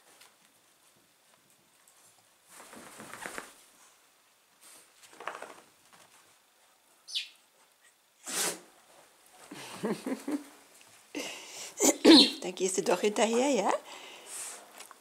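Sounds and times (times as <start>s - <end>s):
duvet rustling: 0.0s - 6.5s.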